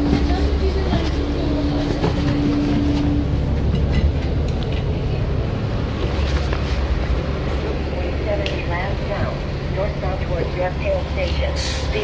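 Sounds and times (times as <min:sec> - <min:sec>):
bus engine rumbling: 0:00.0 - 0:12.0.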